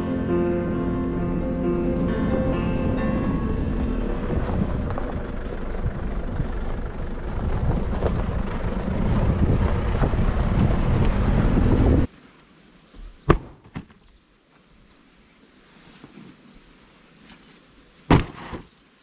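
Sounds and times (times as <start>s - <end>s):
car engine driving: 0.0s - 12.1s
tyres on gravel: 3.7s - 12.1s, 17.3s - 19.0s.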